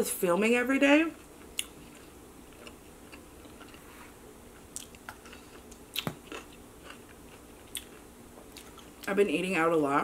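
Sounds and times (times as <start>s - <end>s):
wet chewing: 4.6s - 9.1s.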